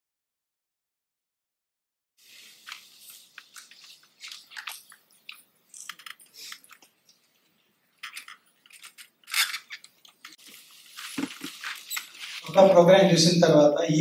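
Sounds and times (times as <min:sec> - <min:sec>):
crackling and rustling: 0:02.2 - 0:12.8.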